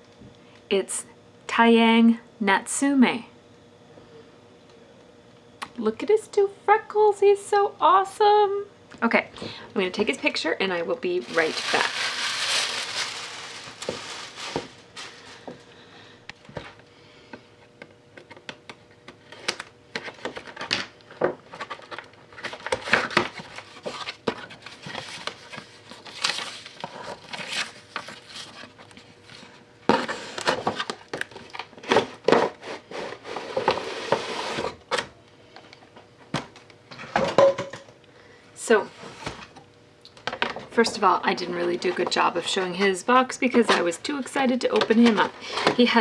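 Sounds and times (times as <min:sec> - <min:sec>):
tissue paper rustling: 0:11.1 - 0:15.6
cardboard box being handled: 0:11.2 - 0:15.4.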